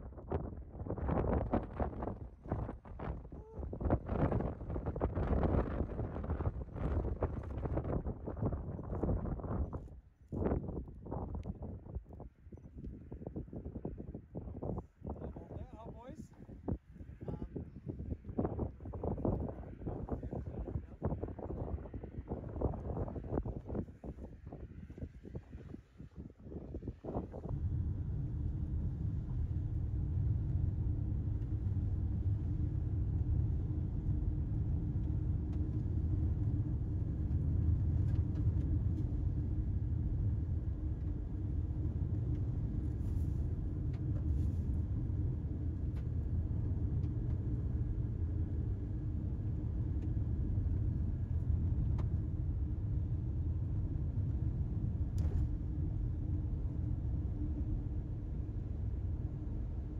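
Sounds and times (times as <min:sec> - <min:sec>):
engine and tyre rumble: 0:00.0 - 0:14.0, 0:18.0 - 0:59.9
faint steady hum: 0:27.1 - 0:59.9.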